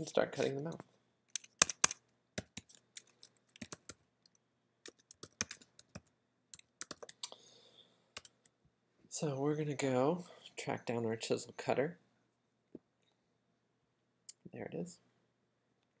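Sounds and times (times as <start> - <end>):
typing on computer keyboard: 1.4 - 7.3.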